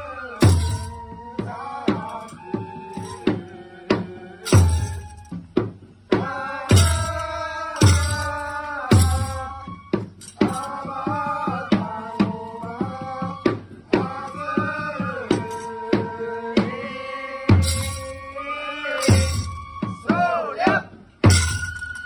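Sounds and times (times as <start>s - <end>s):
drum strikes: 0.4s - 1.2s, 3.0s - 11.0s, 17.5s - 18.3s, 19.0s - 20.0s, 21.2s - 22.0s
heavy low drum beat: 0.4s - 1.2s, 3.9s - 13.0s, 17.5s - 18.3s, 19.0s - 19.9s, 21.2s - 21.9s.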